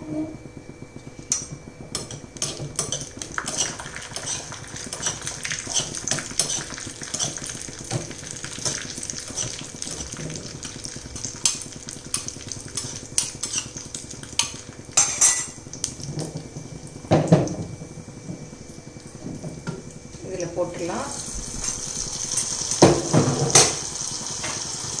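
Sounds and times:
nuts sizzling in a pan: 0:02.0 - 0:16.2, 0:20.2 - 0:25.0.

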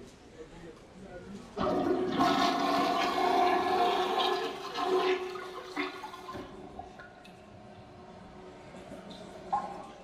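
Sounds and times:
toilet flush: 0:01.6 - 0:06.8.

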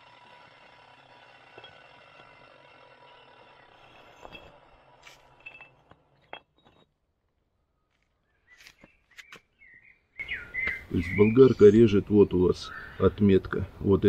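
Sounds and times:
brick clinking on concrete: 0:04.0 - 0:06.9.

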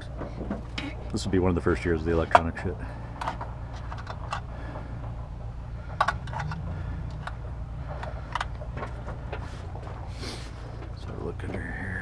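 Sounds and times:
steady low rumble: 0:00.0 - 0:12.0
clicks and rattles of parts: 0:02.2 - 0:10.1.

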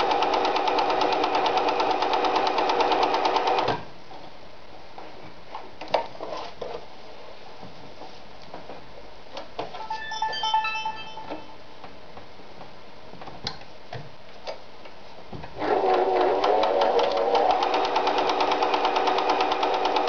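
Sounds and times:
sewing machine stitching: 0:00.0 - 0:03.8, 0:15.6 - 0:20.0.

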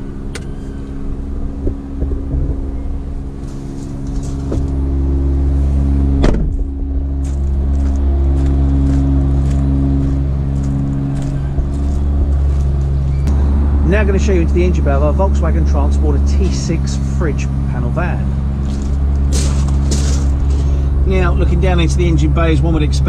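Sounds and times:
low rumble with hum: 0:00.0 - 0:23.0
footsteps on gravel: 0:03.4 - 0:04.8, 0:06.5 - 0:13.2, 0:18.6 - 0:20.8
van door shutting: 0:06.1 - 0:06.8.

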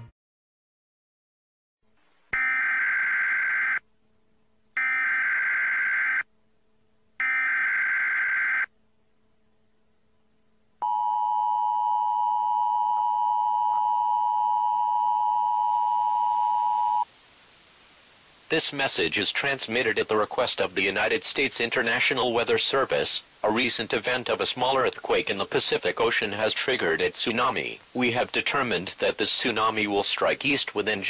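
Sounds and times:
two-tone attention signal: 0:10.8 - 0:17.0.

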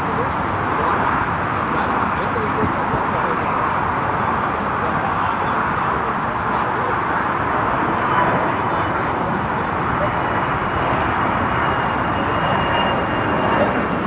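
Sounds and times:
jet engines roaring: 0:00.0 - 0:14.0
faint high whine: 0:05.0 - 0:14.0.

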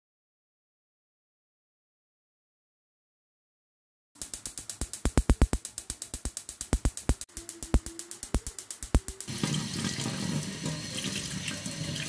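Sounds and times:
electronic music with drum machine: 0:04.2 - 0:09.4.

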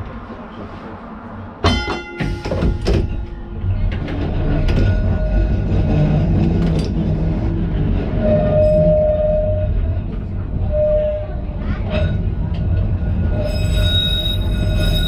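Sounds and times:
tram motors and wheels rumbling: 0:00.0 - 0:15.0
metallic clang: 0:01.6 - 0:03.4.

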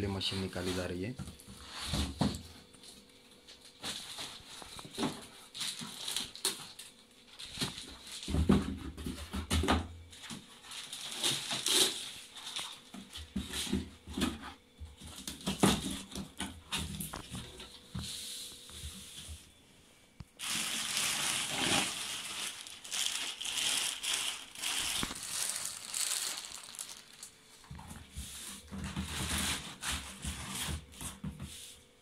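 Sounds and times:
plastic bag crinkling: 0:05.5 - 0:08.3, 0:10.6 - 0:12.8, 0:20.4 - 0:27.8
pulp packing scraping: 0:20.4 - 0:31.1.

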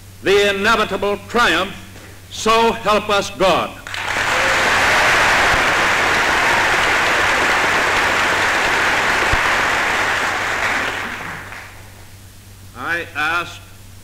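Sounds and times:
loud applause: 0:03.8 - 0:12.0.

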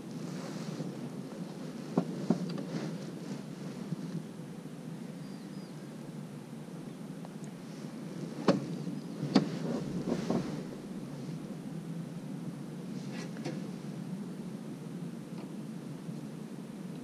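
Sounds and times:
wind rumble on microphone: 0:00.0 - 0:17.0
soft knocks: 0:08.4 - 0:10.6.

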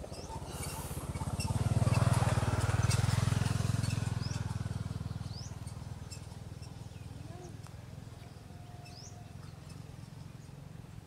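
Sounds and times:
small engine passing by: 0:00.0 - 0:11.0
faint bird chirps: 0:08.2 - 0:10.6.

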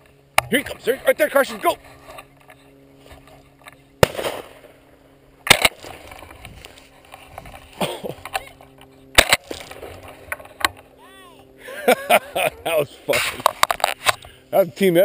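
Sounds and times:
shotgun shots: 0:04.0 - 0:04.8, 0:05.4 - 0:06.1, 0:09.1 - 0:10.0.

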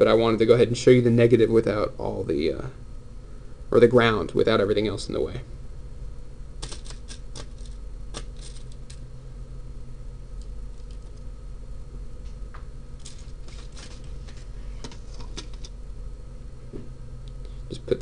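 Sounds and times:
steady low hum: 0:00.0 - 0:18.0
tweezers and wires clicking: 0:06.6 - 0:09.0.

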